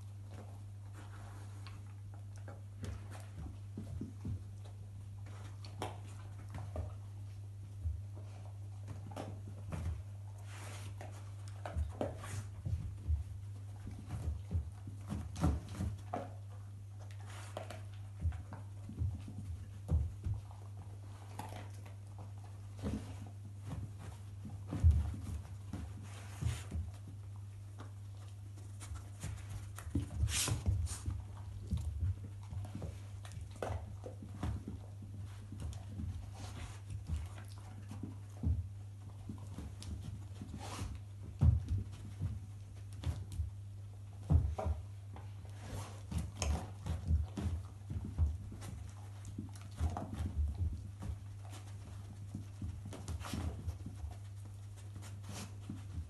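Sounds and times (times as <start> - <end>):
dogs sniffing and chewing: 0.0 - 56.0
dogs sniffing: 20.4 - 34.1, 40.3 - 41.2.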